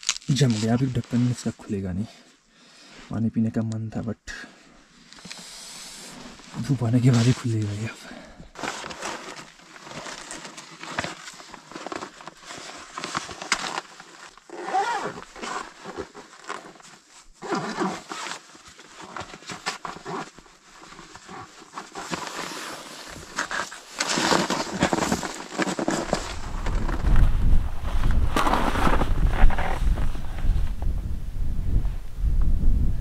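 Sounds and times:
scuffs and scrapes on rock and snow: 0.0s - 2.1s, 5.0s - 30.8s
clothing and gear rustling: 4.9s - 7.9s, 8.5s - 30.9s.

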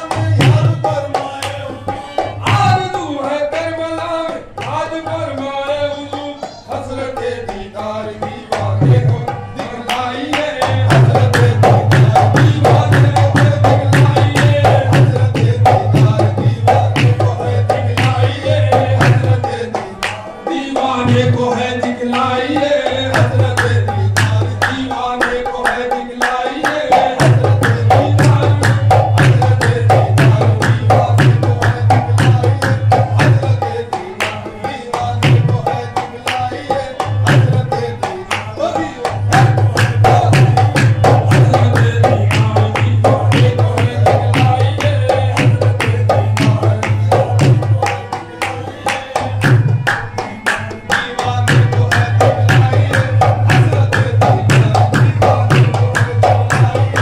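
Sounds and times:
harmonium: 0.0s - 57.0s
men singing: 0.0s - 57.0s
hand claps: 2.2s - 2.8s, 4.6s - 4.9s, 20.0s - 20.3s, 23.2s - 33.4s, 34.2s - 35.4s, 36.3s - 36.6s, 38.2s - 57.0s
drum beat: 2.2s - 3.0s, 10.7s - 19.4s, 26.7s - 33.6s, 39.3s - 47.9s, 51.3s - 57.0s.

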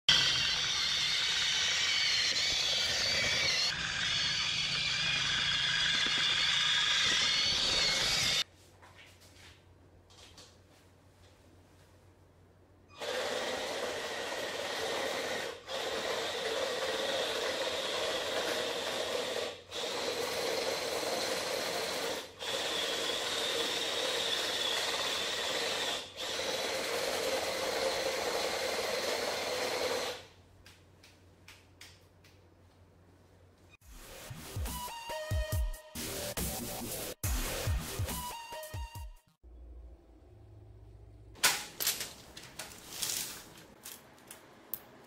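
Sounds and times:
toy tank tracks whirring and clattering: 0.1s - 8.4s, 13.0s - 30.2s.

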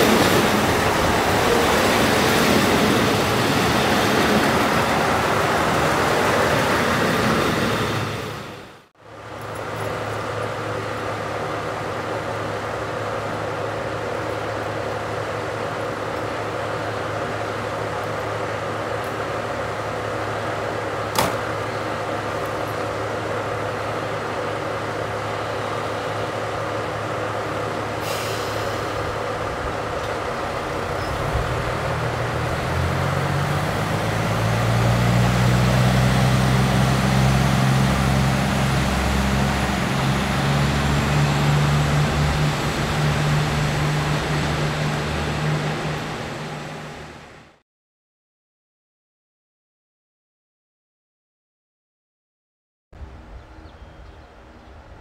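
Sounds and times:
diesel engine revving: 28.0s - 47.6s.

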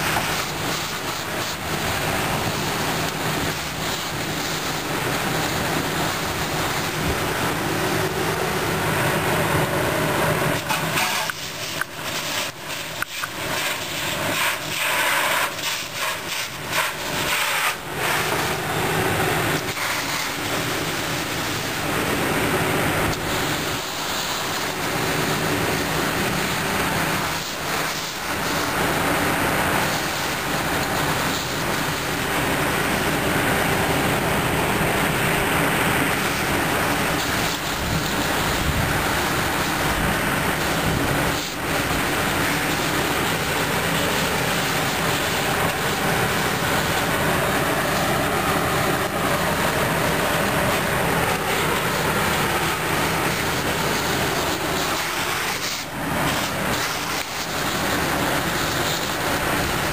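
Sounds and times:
engine droning: 0.0s - 59.9s
hose spraying water hiss: 0.0s - 59.9s.

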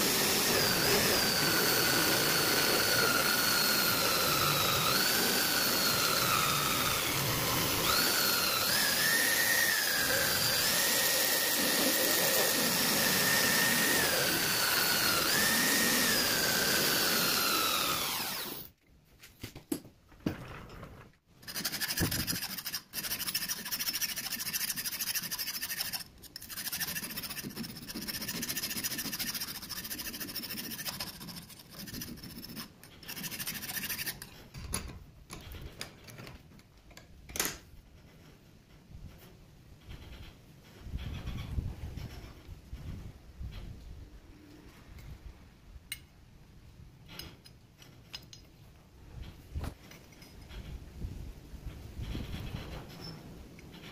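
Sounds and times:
lathe end mill whining: 0.0s - 18.7s
hand file scraping metal: 21.4s - 34.5s.

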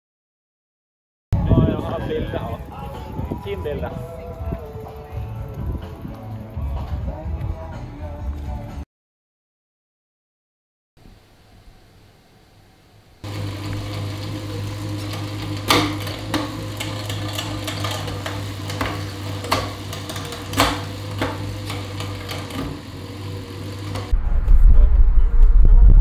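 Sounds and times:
bicycle whirring on trainer: 1.4s - 7.3s, 11.8s - 24.2s
sharp clicks and knocks: 15.0s - 22.8s.

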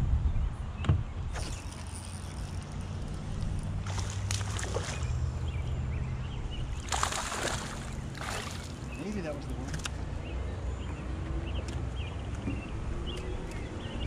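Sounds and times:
water splashing against hull: 1.4s - 5.5s, 6.7s - 10.0s
boat motor humming: 1.4s - 14.0s.

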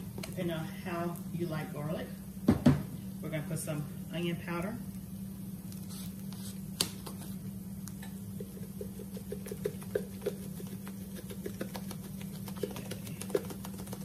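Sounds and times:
powder shaker ticking: 8.3s - 14.0s.

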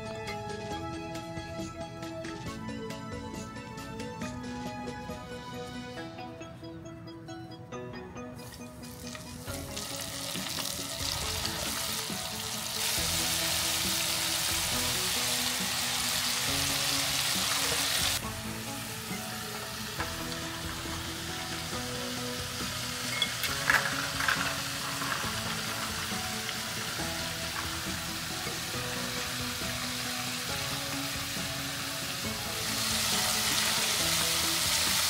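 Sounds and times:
background music: 0.0s - 35.0s
deep-frying sizzle in hot oil: 9.0s - 35.0s.

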